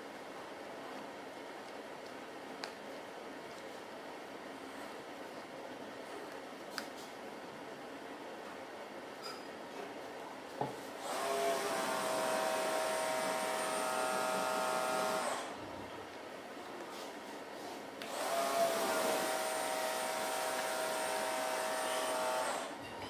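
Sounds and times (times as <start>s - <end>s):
small electric motor whine: 11.0s - 15.6s, 18.0s - 22.8s.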